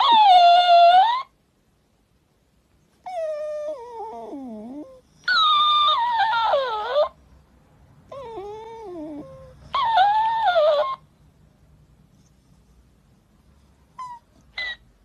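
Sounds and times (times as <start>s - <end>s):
dog whining: 0.0s - 1.4s, 3.0s - 7.2s, 8.1s - 11.1s, 13.9s - 15.0s.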